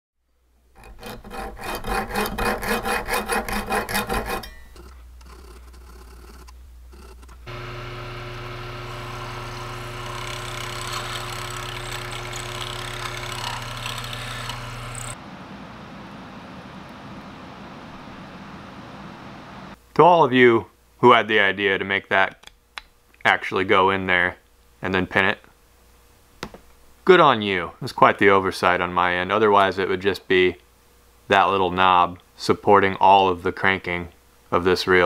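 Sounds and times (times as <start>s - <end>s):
rasp filing workpiece: 0.8s - 15.2s
machine hum: 0.8s - 19.8s.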